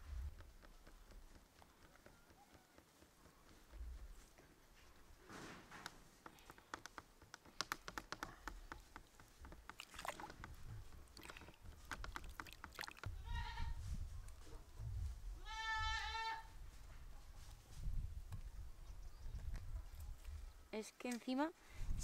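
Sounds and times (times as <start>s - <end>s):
farm animal bleating: 13.0s - 13.8s, 15.4s - 16.6s.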